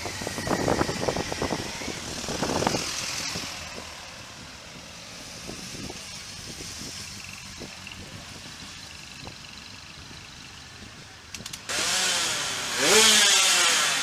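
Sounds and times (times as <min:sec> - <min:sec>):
motorcycle engines running: 0:00.0 - 0:14.0.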